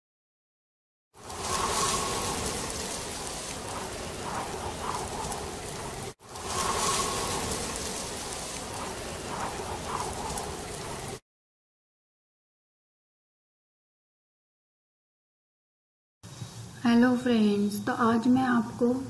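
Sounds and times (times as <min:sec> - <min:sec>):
rain hiss: 0:01.2 - 0:11.2.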